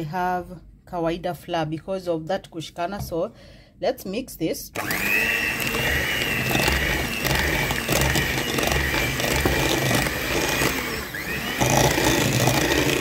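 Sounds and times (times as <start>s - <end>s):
kitchen mixer motor whining: 4.8s - 13.0s.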